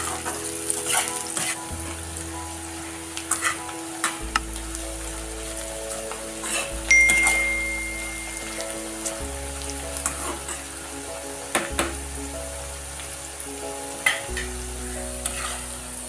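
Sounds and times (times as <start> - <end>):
onions sizzling in oil: 0.0 - 16.0
bright ringing chime: 6.9 - 9.0.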